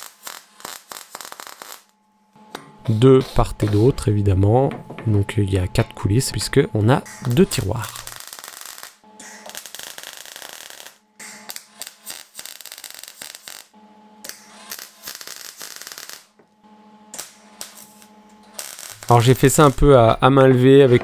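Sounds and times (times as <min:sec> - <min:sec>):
welding arc crackling: 0:00.0 - 0:01.9, 0:06.4 - 0:16.4, 0:17.1 - 0:21.0
electrical hum: 0:01.9 - 0:12.1, 0:16.3 - 0:21.0.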